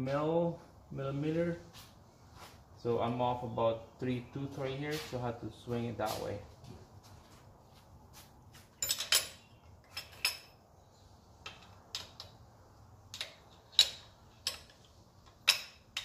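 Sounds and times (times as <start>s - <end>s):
metal tools clinking: 8.7s - 10.6s, 13.2s - 16.0s.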